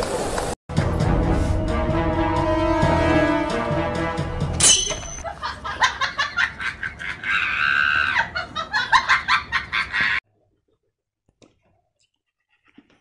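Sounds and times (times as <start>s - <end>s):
person laughing: 5.2s - 10.2s.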